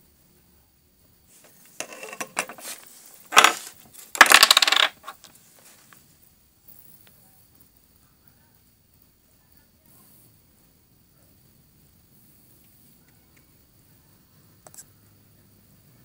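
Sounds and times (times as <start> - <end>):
small hard objects clattering: 1.4 - 6.0.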